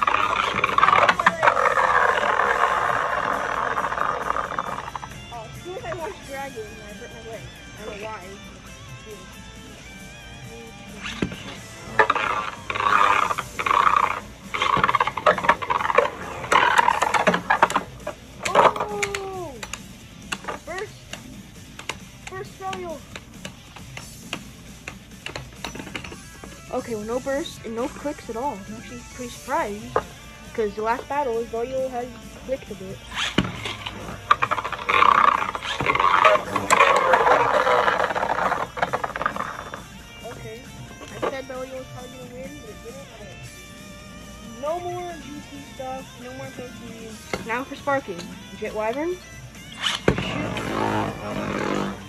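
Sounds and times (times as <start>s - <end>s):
spinning tops whirring and scraping: 0.0s - 8.1s, 10.8s - 42.0s, 44.6s - 52.0s
tops clicking against each other: 12.0s - 26.6s.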